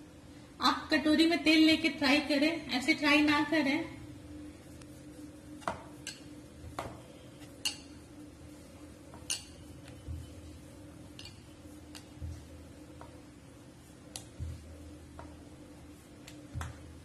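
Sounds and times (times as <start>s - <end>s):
steady low hum: 0.0s - 17.0s
rolling pin rolling dough: 4.9s - 17.0s
rolling pin knocking on board: 16.5s - 16.8s.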